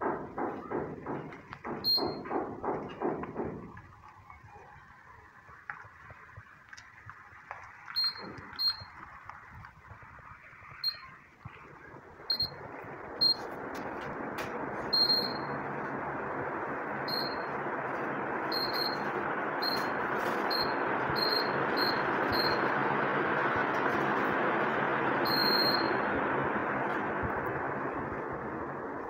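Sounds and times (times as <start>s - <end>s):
ceiling fan air whoosh: 0.0s - 29.0s
fan remote beeps: 1.8s - 2.3s, 7.9s - 8.9s, 10.8s - 11.2s, 12.3s - 13.6s, 14.6s - 15.7s, 17.0s - 17.6s, 18.4s - 22.8s, 25.2s - 26.1s.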